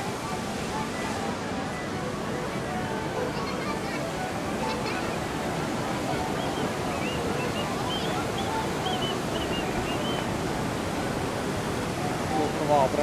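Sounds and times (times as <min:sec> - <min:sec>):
water rushing down chute: 0:00.0 - 0:13.0
faint high chirps: 0:06.4 - 0:10.3.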